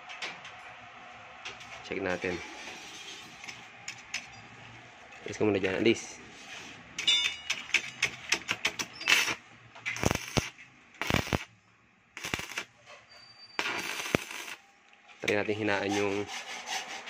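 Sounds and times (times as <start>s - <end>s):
welding electrode crackling: 8.5s - 11.5s, 12.2s - 12.7s, 13.6s - 14.6s
welding arc bursts: 8.8s - 11.5s, 12.2s - 12.7s, 13.6s - 14.6s.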